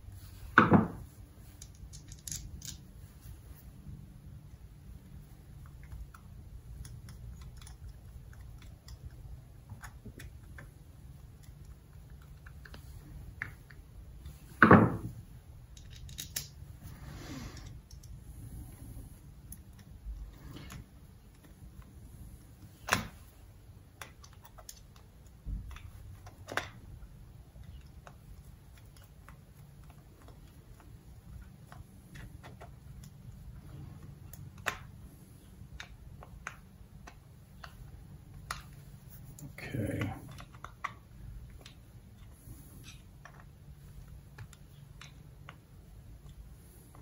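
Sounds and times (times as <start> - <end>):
small metal clicks and taps: 15.7 - 16.6, 24.0 - 26.8.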